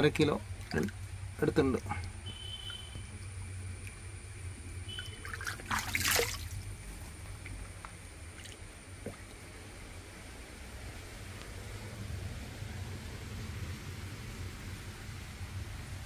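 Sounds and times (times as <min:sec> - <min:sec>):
water trickling and sloshing in a basin: 0:00.0 - 0:16.0
fish splashing: 0:00.5 - 0:09.6.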